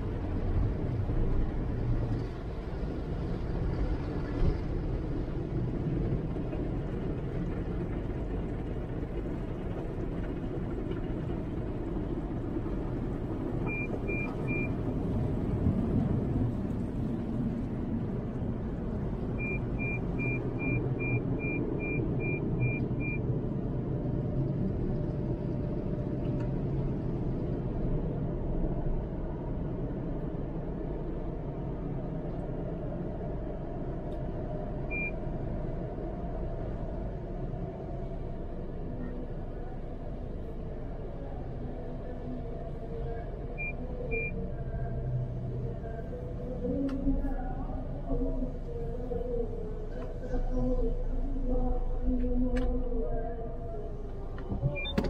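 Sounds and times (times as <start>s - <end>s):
short high beeps: 54.7s - 55.0s.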